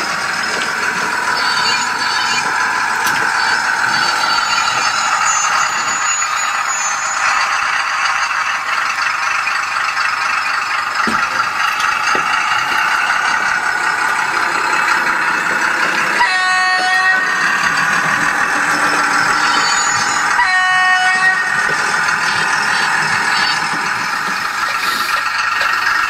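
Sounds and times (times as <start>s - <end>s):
model diesel engine running: 0.0s - 26.0s
locomotive horn: 16.1s - 23.6s.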